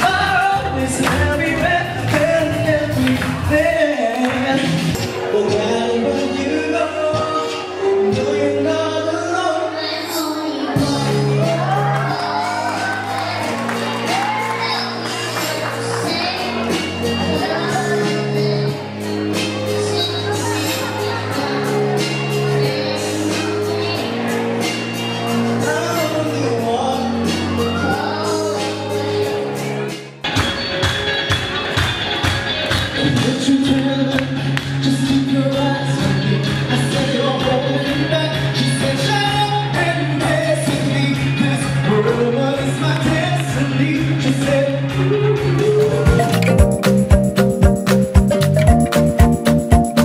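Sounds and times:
song with singing: 0:00.0 - 0:30.2, 0:31.6 - 0:50.0
pop backing track: 0:00.0 - 0:50.0
child singing into microphone: 0:05.0 - 0:24.6, 0:25.6 - 0:29.6.

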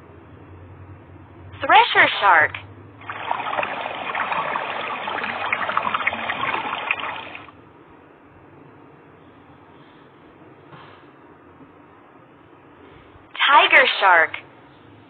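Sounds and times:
rushing water: 0:03.0 - 0:07.5.

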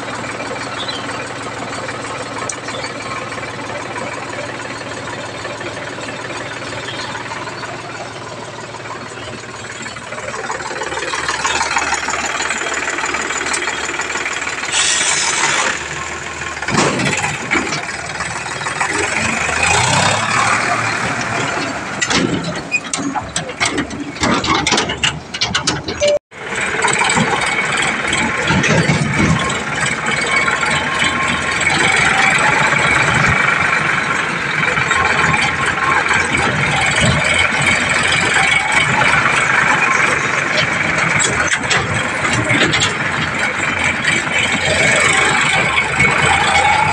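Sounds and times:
tractor diesel engine running: 0:00.0 - 0:46.9
sharp knocks and clanks: 0:16.6 - 0:18.1, 0:21.1 - 0:26.2.

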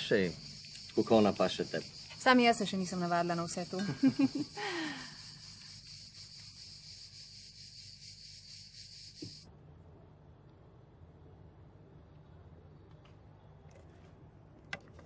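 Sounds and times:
crickets chirping: 0:00.0 - 0:09.5
faint low hum: 0:09.2 - 0:15.0.

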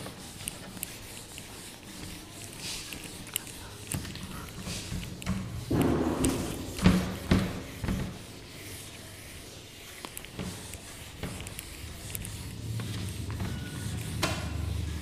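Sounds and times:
duster rubbing whiteboard: 0:00.0 - 0:15.0
sharp knocks: 0:05.7 - 0:07.7.

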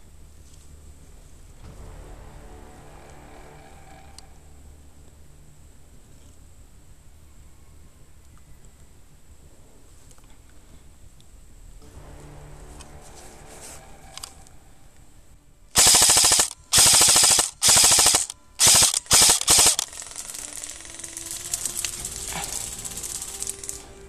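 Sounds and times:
airsoft rifle full-auto bursts: 0:15.8 - 0:23.8.

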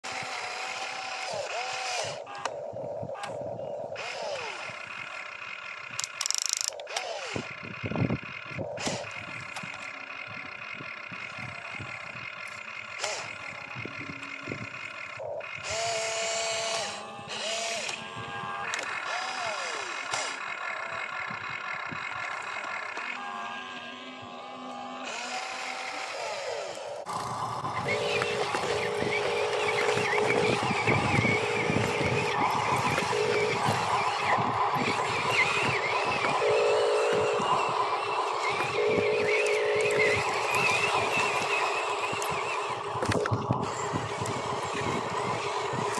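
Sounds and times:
small electric motors whining: 0:00.0 - 0:45.9
rattling gear ratchet: 0:04.0 - 0:17.9.

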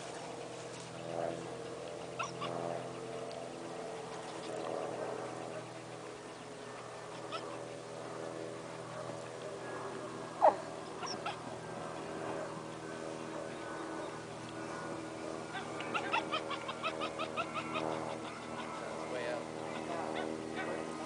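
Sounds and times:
dog whining: 0:02.2 - 0:02.6, 0:07.1 - 0:07.6, 0:10.4 - 0:11.4, 0:15.6 - 0:18.7.

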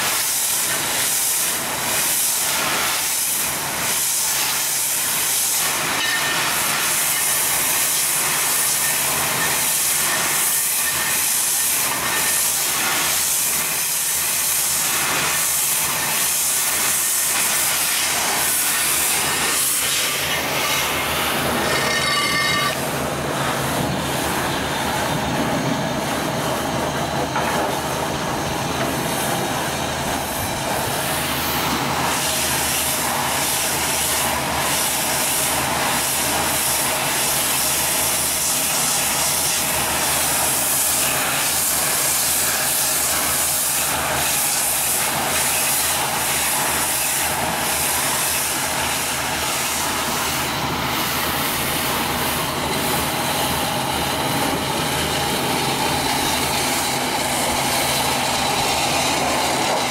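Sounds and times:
loud steady hiss: 0:00.0 - 0:59.9
engine running: 0:11.9 - 0:59.9.

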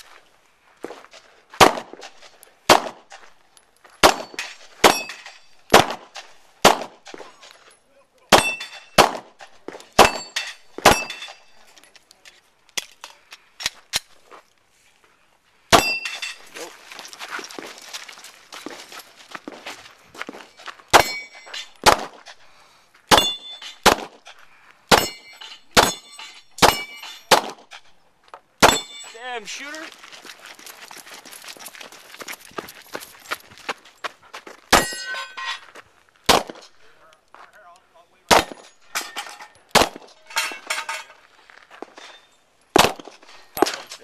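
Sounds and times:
pistol shots: 0:01.6 - 0:02.0, 0:02.7 - 0:03.1, 0:04.0 - 0:07.1, 0:08.3 - 0:11.4, 0:20.9 - 0:22.2, 0:23.1 - 0:24.2, 0:24.9 - 0:25.2, 0:25.8 - 0:27.7, 0:28.6 - 0:29.0, 0:36.3 - 0:36.6, 0:38.3 - 0:38.7, 0:39.7 - 0:40.2, 0:42.7 - 0:43.9
steel plates clanging: 0:04.2 - 0:05.7, 0:08.4 - 0:09.0, 0:10.0 - 0:11.8, 0:15.8 - 0:16.7, 0:20.9 - 0:21.8, 0:23.1 - 0:23.9, 0:24.9 - 0:28.0, 0:28.6 - 0:29.8, 0:34.8 - 0:35.8, 0:38.4 - 0:41.3
steel plate ringing: 0:15.8 - 0:16.4, 0:21.0 - 0:21.8, 0:23.1 - 0:23.8, 0:24.9 - 0:27.3, 0:28.6 - 0:29.4, 0:34.8 - 0:35.6.

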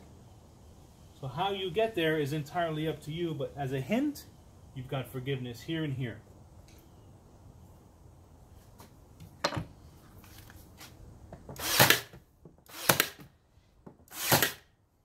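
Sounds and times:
nail gun firing into wood: 0:11.5 - 0:13.3, 0:14.1 - 0:14.7.

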